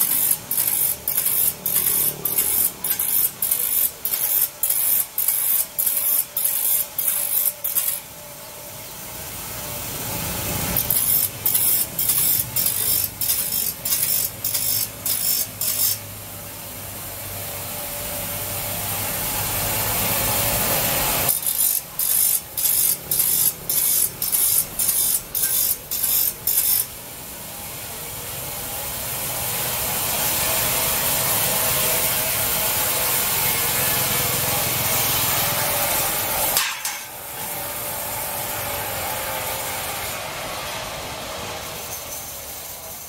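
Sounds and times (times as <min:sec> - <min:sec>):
grinder motor hum: 0:00.0 - 0:08.1
grinder wheel grinding steel: 0:00.0 - 0:08.1, 0:09.8 - 0:16.1, 0:19.4 - 0:27.0.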